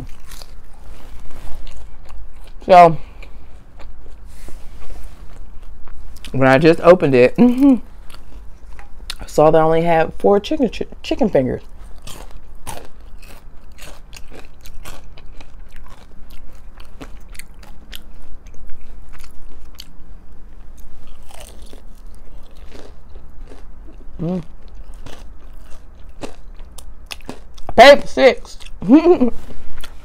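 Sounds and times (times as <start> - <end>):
crunching and chewing food: 0.0 - 10.0, 10.8 - 27.8, 28.4 - 30.0
person humming: 24.2 - 24.5.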